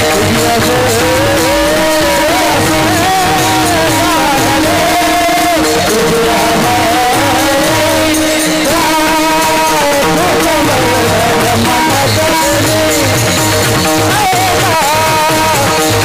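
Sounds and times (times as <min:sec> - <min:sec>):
steady held drone: 0:00.0 - 0:14.6
repeating drum beat: 0:00.0 - 0:16.0
wavering sung melody: 0:00.1 - 0:13.2.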